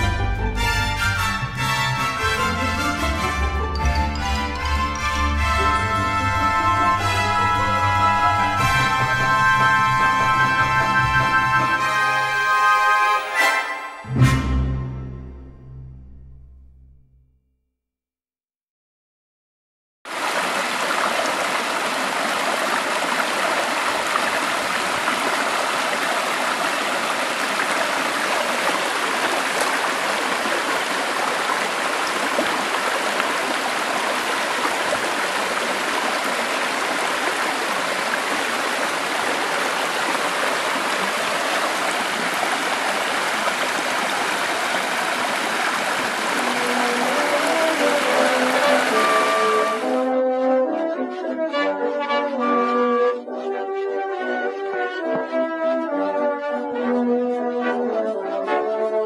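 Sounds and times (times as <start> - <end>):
stream flowing over rocks: 2.0 - 14.0, 20.1 - 50.0.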